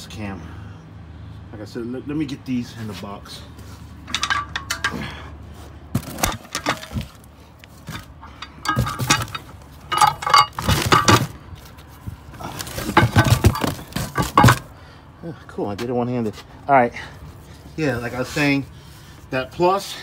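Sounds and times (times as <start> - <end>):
metal brake shoes clanking: 4.0 - 5.4, 6.0 - 14.9.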